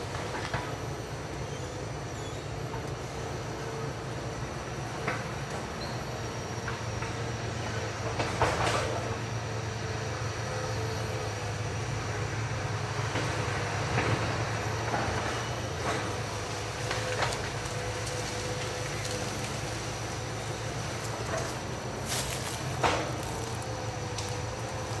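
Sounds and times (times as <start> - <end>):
distant excavator diesel engine: 0.0 - 25.0
sharp knocks and cracks of timber: 21.2 - 25.0.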